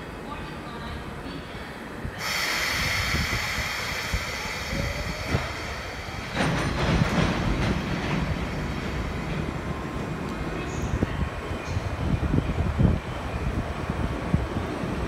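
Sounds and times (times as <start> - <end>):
steady hiss: 2.2 - 9.8
train rumbling with clanks: 2.2 - 15.0.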